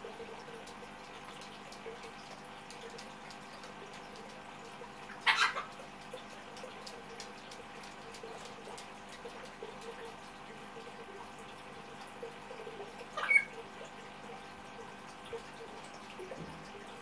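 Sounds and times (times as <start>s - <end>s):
loud raspy parrot sound: 5.2s - 5.7s, 13.2s - 13.6s.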